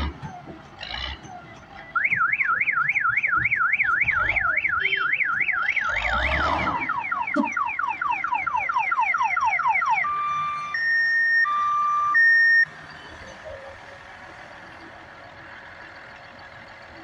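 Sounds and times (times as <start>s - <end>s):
electronic reversing siren: 0.0s - 12.7s.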